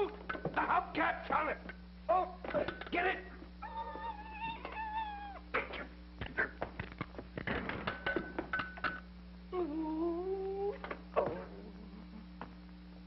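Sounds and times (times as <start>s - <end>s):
man moaning: 9.5s - 12.3s.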